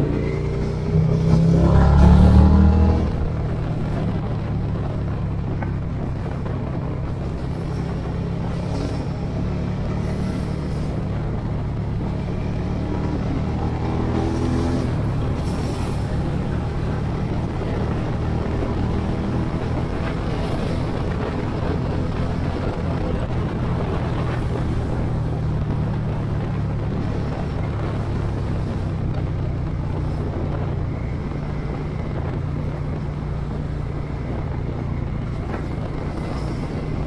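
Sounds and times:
motorcycle engine running: 0:00.0 - 0:37.0
wind noise: 0:00.0 - 0:37.0.

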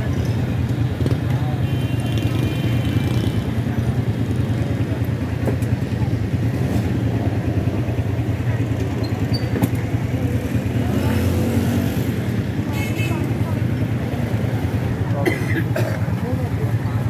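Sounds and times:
people talking: 0:00.0 - 0:17.0
traffic engine rumble: 0:00.0 - 0:17.0.

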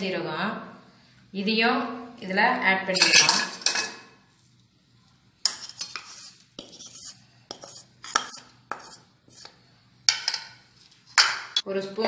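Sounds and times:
spoon clinking and scraping bowl: 0:02.9 - 0:04.0, 0:05.4 - 0:09.5.

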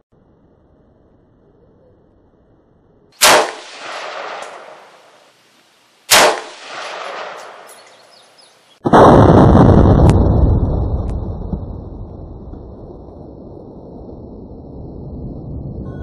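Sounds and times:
rifle shots with echo: 0:03.2 - 0:05.2, 0:06.1 - 0:09.2.

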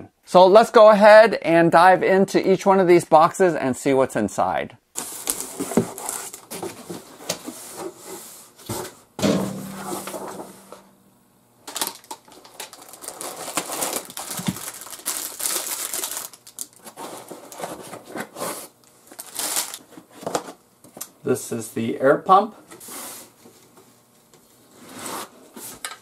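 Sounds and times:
foil crinkling: 0:11.6 - 0:19.9.

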